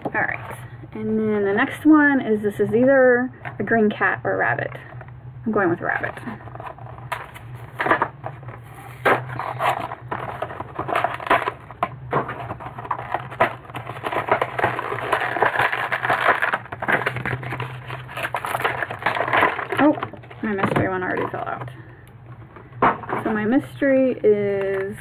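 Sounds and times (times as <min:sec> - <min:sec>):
plastic packaging crinkling: 0:06.0 - 0:23.2.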